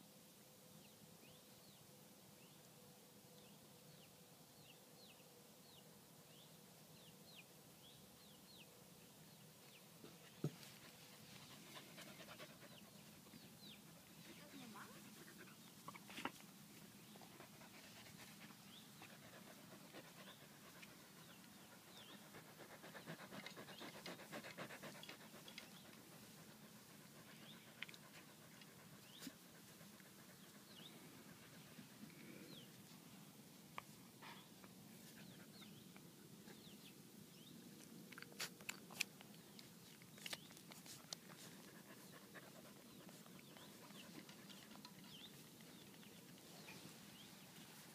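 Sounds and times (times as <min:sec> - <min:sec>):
puppies panting: 0:10.2 - 0:16.1, 0:17.0 - 0:32.0, 0:40.6 - 0:46.6.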